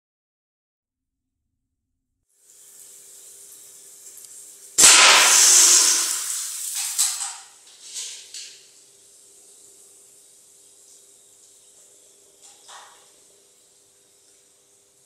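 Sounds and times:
hiss: 2.4 - 8.2
pellet hitting plastic bottle: 4.8 - 6.1
suppressed air pistol shot: 4.8 - 6.4
short bursts of noise: 4.8 - 7.2.

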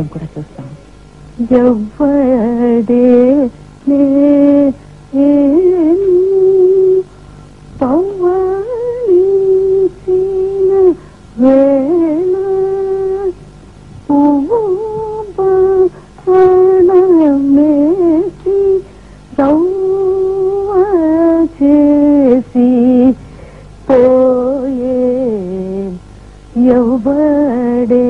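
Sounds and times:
faint steady drone: 0.0 - 28.0
person singing long classical notes: 7.8 - 13.4, 14.1 - 18.8, 19.4 - 23.2, 26.6 - 28.0.

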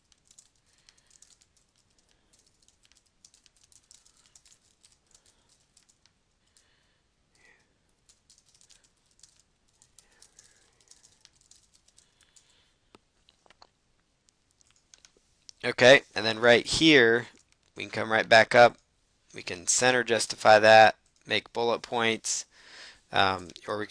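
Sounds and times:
faint keyboard typing: 0.0 - 22.4, 23.2 - 23.9.

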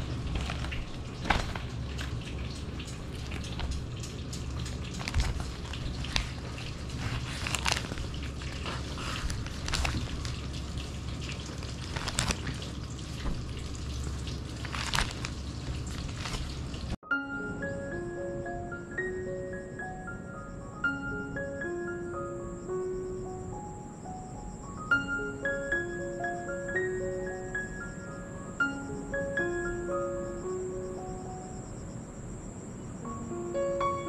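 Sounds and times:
steady low hum: 0.0 - 34.0
newspaper pages rustling: 4.8 - 17.0.

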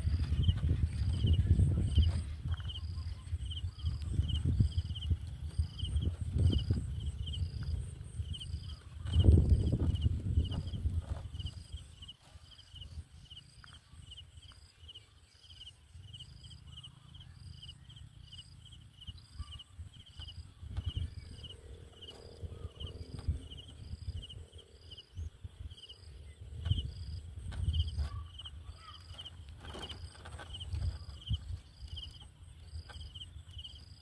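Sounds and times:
low rumbling with bumps: 4.3 - 11.9.

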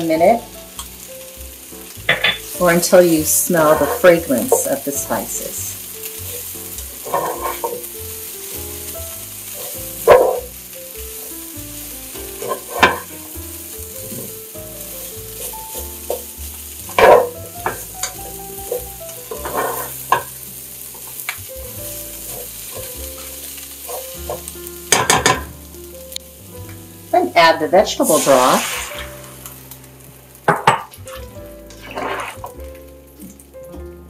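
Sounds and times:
vegetables sizzling in frying pan: 0.0 - 33.8
spatula scraping pan: 2.1 - 5.3, 6.2 - 8.0, 9.6 - 10.5, 12.3 - 13.2, 16.9 - 21.2, 22.2 - 25.5, 27.7 - 29.4, 31.7 - 32.6.

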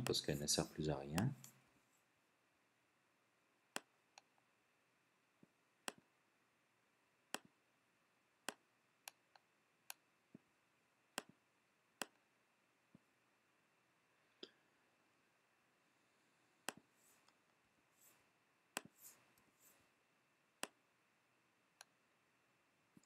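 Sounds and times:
computer mouse clicking: 3.7 - 4.3, 5.8 - 6.1, 7.3 - 7.5, 8.4 - 10.0, 11.2 - 11.4, 16.6 - 17.4.

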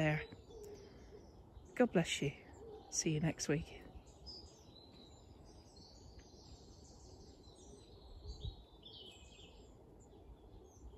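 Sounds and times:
birds chirping and trilling: 0.0 - 10.9.

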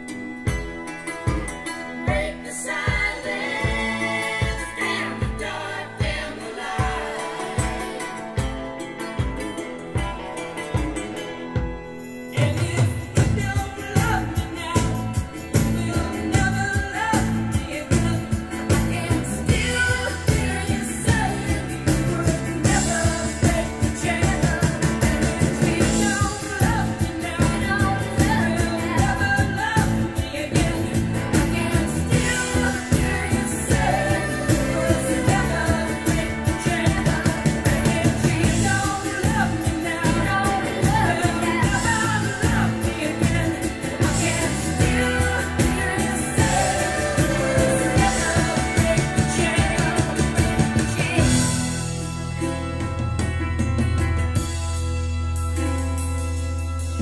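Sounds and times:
song played through loudspeakers: 0.0 - 57.0.

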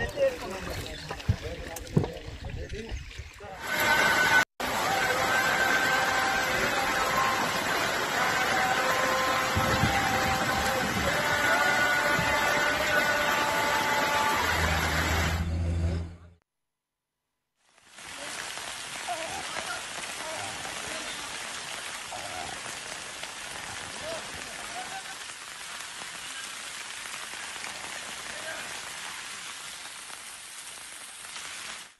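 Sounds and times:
rain falling on surfaces: 4.6 - 15.4, 17.6 - 31.9.

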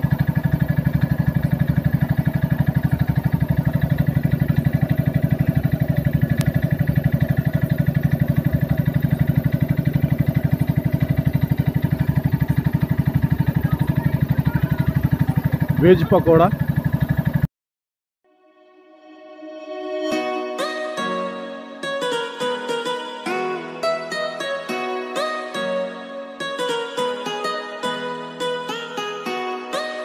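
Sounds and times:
generator engine running: 0.0 - 17.5.

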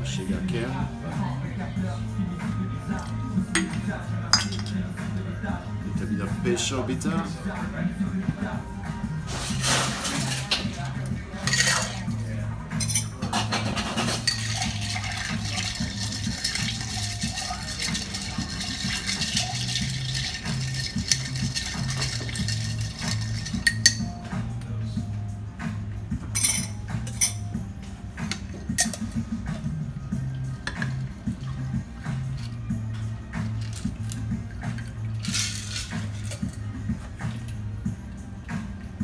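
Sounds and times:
background music with bass line: 0.0 - 39.0
glass and metal clinks: 3.6 - 4.8, 11.4 - 12.0, 21.2 - 24.1, 26.4 - 27.5
ice stirred with metal spoon: 9.3 - 12.2, 12.8 - 24.1, 33.5 - 36.6.

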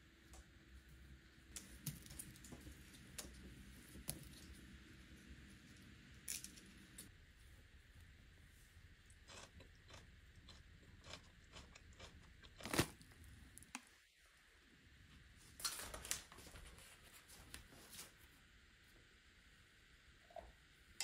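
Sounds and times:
crunches and clicks of kitchen work: 1.5 - 7.1, 15.1 - 18.2.

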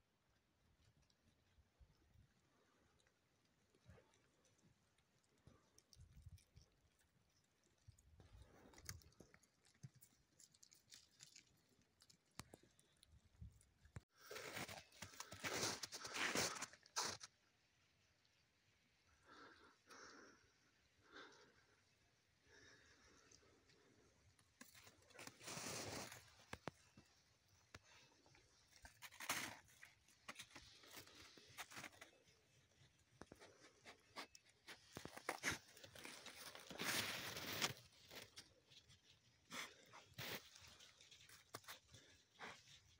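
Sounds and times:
crunching and rustling in snow: 14.2 - 17.3, 24.6 - 27.1, 27.8 - 32.5, 33.5 - 42.9.

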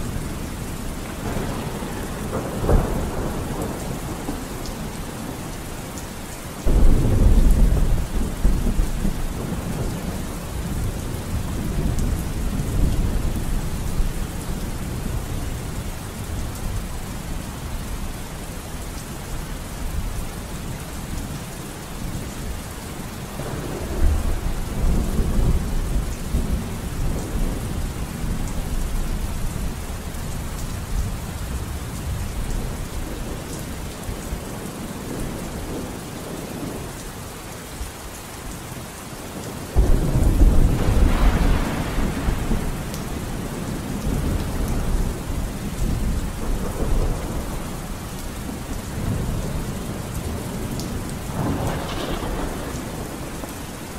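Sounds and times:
rumbling thunder: 0.0 - 5.5, 6.6 - 15.3, 23.4 - 29.8, 39.7 - 53.9
steady rain: 0.0 - 53.9.

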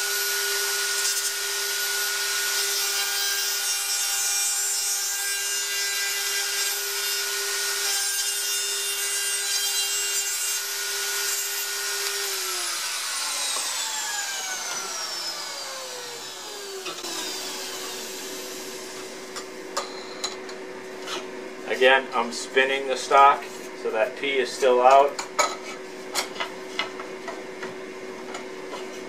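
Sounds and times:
router cutting wood: 0.0 - 19.4
router motor spinning down: 11.0 - 19.4.

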